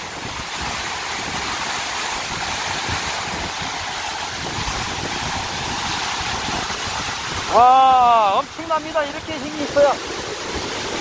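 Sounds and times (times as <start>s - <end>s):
waterfall crashing onto rocks: 0.0s - 11.0s.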